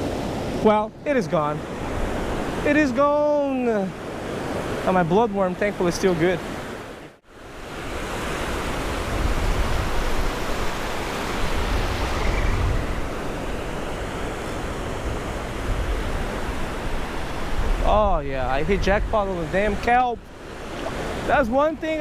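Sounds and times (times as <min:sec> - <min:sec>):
surf washing over shallows: 0:00.0 - 0:22.0
wind rumble on microphone: 0:07.4 - 0:21.3.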